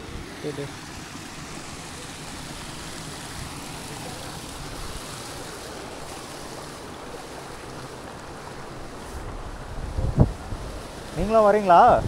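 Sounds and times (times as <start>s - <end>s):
wind buffeting microphone: 8.6s - 12.0s.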